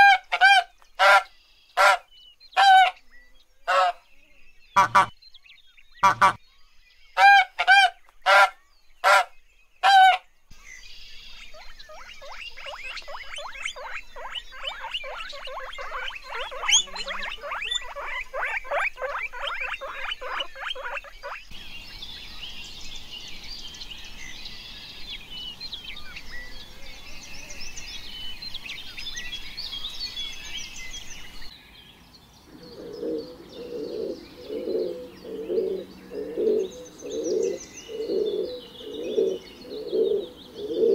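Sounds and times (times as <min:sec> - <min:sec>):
goose honking: 0:00.0 - 0:02.0, 0:02.6 - 0:03.0, 0:04.8 - 0:05.1, 0:06.0 - 0:06.4, 0:07.2 - 0:10.2
guinea pigs squeaking: 0:04.8 - 0:05.1, 0:06.0 - 0:06.4, 0:11.6 - 0:21.5
high chirping: 0:04.8 - 0:05.1, 0:06.0 - 0:06.4, 0:10.9 - 0:21.6
pigeons cooing: 0:32.5 - 0:40.9.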